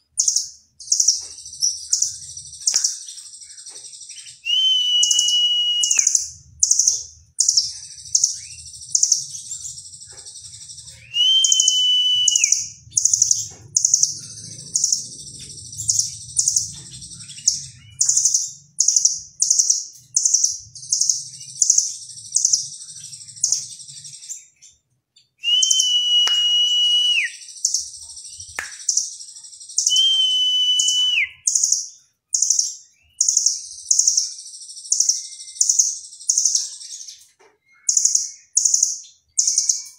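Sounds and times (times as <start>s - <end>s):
bird whistle: 4.2s - 7.6s, 10.9s - 14.0s, 25.4s - 27.7s, 29.8s - 31.8s
bird calling sharp high notes: 11.1s - 12.7s, 25.4s - 27.4s, 29.9s - 31.4s.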